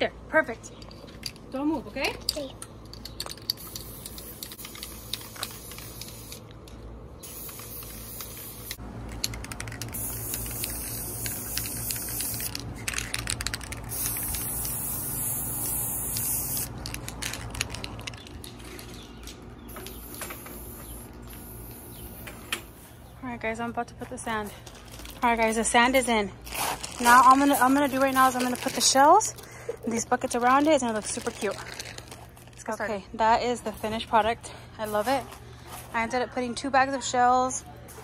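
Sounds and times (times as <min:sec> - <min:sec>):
spray paint can hissing: 0:03.2 - 0:06.5, 0:07.2 - 0:18.2, 0:19.6 - 0:22.4.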